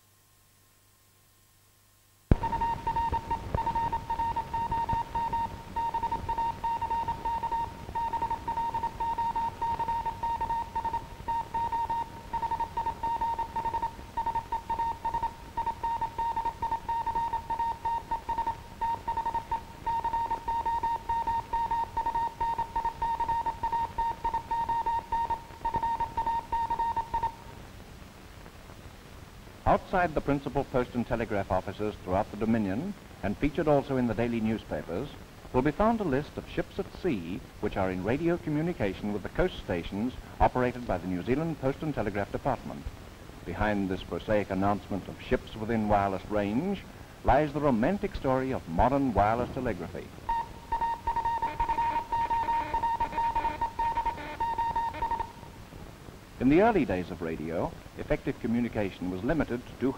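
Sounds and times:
film soundtrack crackle and hiss: 0.0 - 59.9
morse code beeps: 2.3 - 27.4, 50.3 - 55.4.

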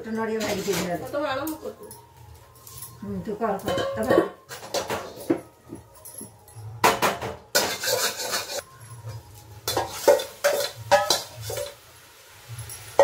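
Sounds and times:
metal scraping: 7.5 - 11.7
pot lid clanking: 9.7 - 11.7.

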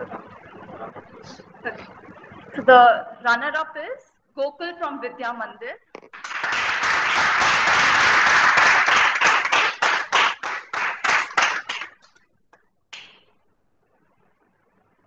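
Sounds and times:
audience applauding: 6.1 - 12.1.

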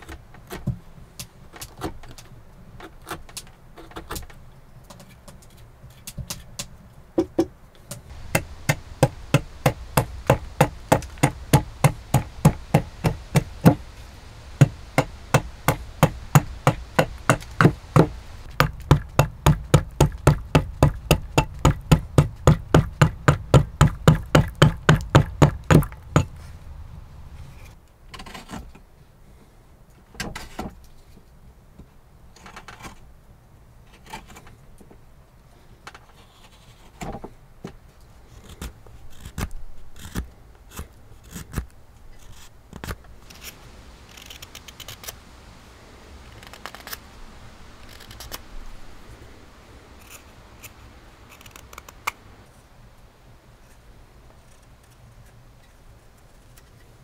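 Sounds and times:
mallet striking chisel: 8.2 - 13.8, 14.6 - 26.3.

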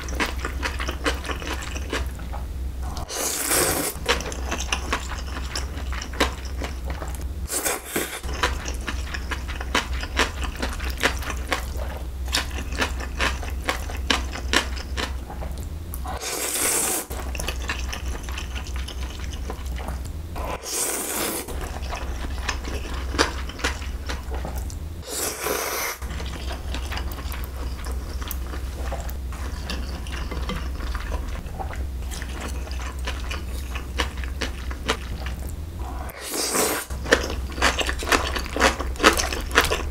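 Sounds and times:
wet chewing: 2.9 - 16.2, 17.0 - 24.8, 26.0 - 35.6, 36.2 - 39.9
loud wet noodle slurps: 3.1 - 4.0, 16.2 - 17.1, 20.6 - 21.5, 25.0 - 26.0, 36.1 - 36.9.

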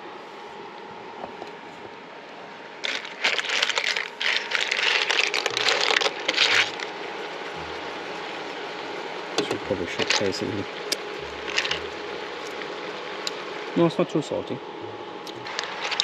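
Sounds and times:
pan crackling and sizzling: 2.8 - 13.8, 15.4 - 16.0.

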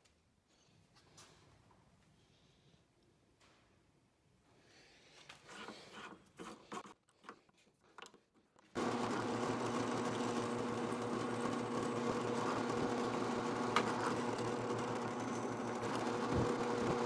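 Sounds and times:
drill bit drilling into steel: 8.8 - 17.0
drill press motor humming: 8.8 - 17.0.

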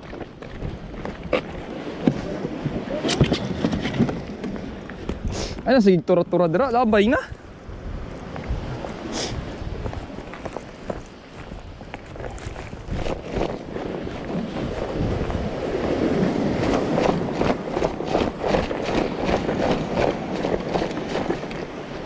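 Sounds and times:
footsteps on concrete: 0.0 - 5.6, 8.3 - 13.0
wind buffeting microphone: 0.0 - 22.0.

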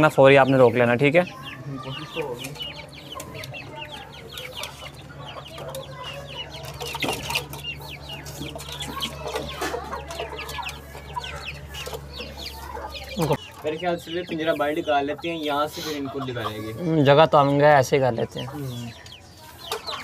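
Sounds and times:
chicks peeping: 0.0 - 20.0
hens clucking: 0.0 - 20.0.

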